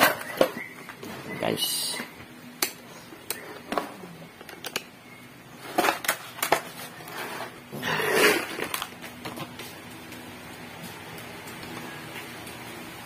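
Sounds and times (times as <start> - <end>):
rustling or scraping: 5.6 - 10.2.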